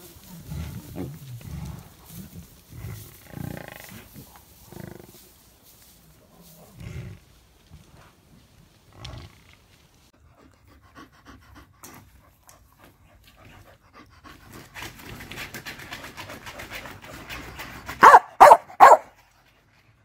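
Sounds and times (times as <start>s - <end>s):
dog panting: 10.2s - 20.0s
dog barking: 18.0s - 19.2s.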